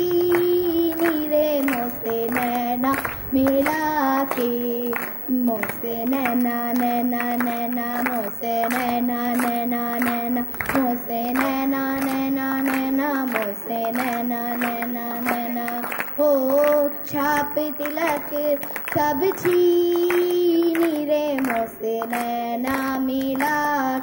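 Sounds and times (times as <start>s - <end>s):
girl singing into microphone: 0.0s - 24.0s.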